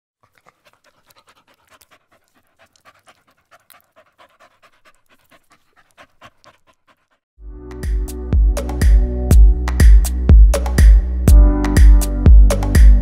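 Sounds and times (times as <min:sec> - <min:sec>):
dog panting: 0:00.2 - 0:07.2.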